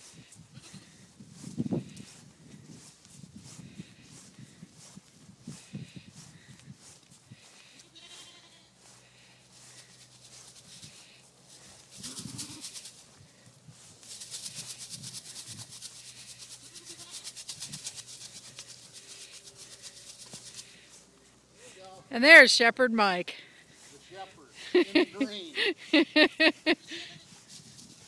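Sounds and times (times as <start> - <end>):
sheep bleating: 7.8 - 8.7
rapid even rustling: 8.8 - 21.7, 23.4 - 28.0.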